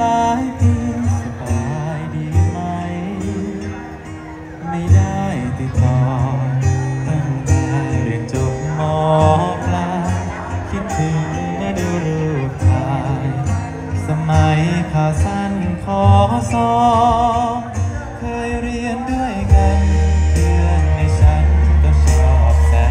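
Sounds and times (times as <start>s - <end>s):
person singing with vibrato: 0.0s - 22.9s
repeating bass line: 19.4s - 22.9s.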